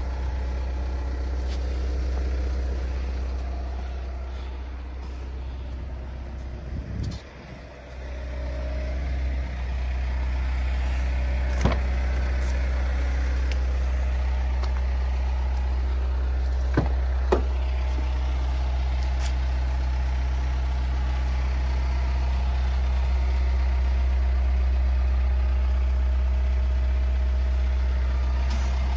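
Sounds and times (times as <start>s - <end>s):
diesel engine idling: 0.0s - 28.9s
car doors clicking open: 11.5s - 12.0s.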